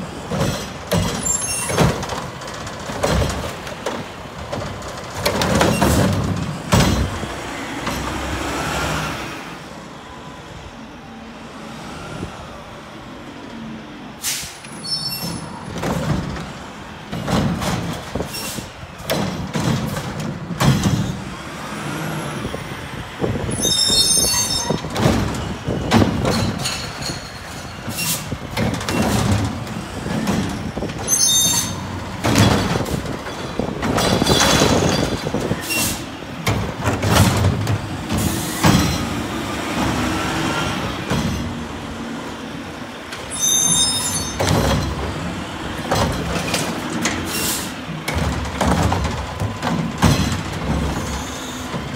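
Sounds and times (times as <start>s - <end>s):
air brakes hissing: 14.2s - 15.5s, 18.2s - 18.8s, 27.9s - 28.4s, 35.6s - 36.2s, 47.2s - 47.8s.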